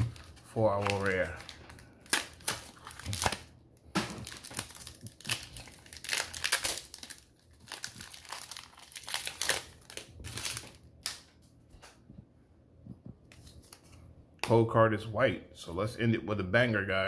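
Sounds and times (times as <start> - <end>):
foil wrapper crinkling: 0.0 - 3.5, 4.1 - 11.3.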